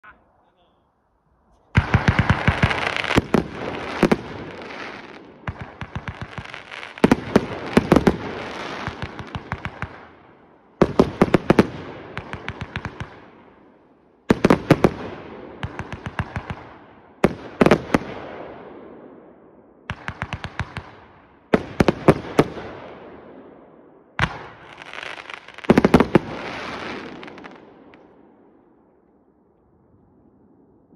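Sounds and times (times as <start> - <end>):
firework bangs: 1.7 - 13.5, 24.2 - 28.1.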